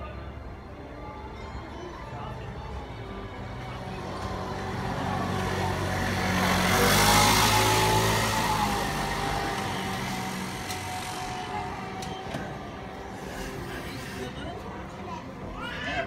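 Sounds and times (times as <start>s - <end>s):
vehicle passing by: 3.5s - 14.6s.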